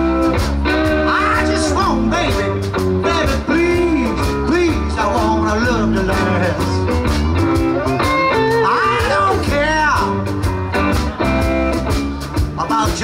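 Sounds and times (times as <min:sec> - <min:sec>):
electric guitars: 0:00.0 - 0:13.0
steady drum beat: 0:00.0 - 0:13.0
man singing: 0:00.7 - 0:07.0, 0:08.0 - 0:10.3, 0:12.4 - 0:13.0.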